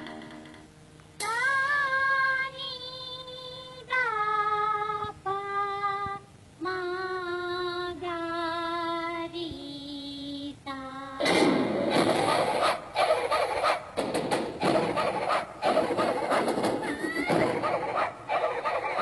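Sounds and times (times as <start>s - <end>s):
high voice singing long notes: 0.0s - 11.3s.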